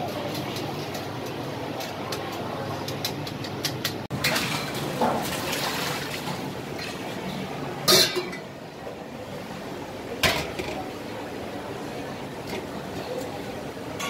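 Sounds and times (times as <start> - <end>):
kitchen background noise: 0.0 - 14.0
metal pots clattering: 7.8 - 8.5.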